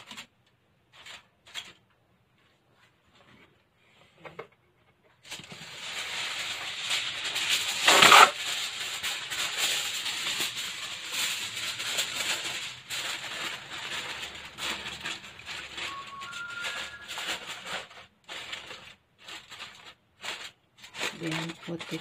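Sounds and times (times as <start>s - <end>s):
aluminium foil crinkling: 0.9s - 1.9s, 5.2s - 22.0s.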